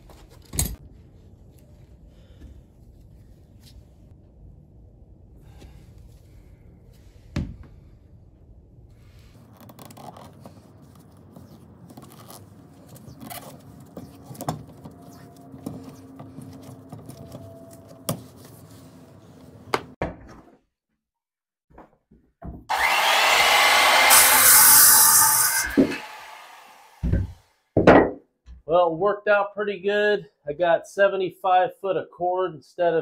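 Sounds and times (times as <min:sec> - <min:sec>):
tape rubbing and crinkling: 0:09.2 - 0:19.0
circular saw cutting wood: 0:22.7 - 0:27.4.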